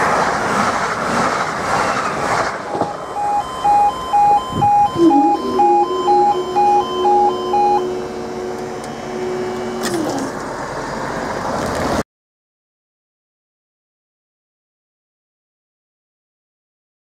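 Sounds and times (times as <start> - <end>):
barrier drive humming: 2.6 - 11.5
two-tone alarm beeping: 2.8 - 10.5.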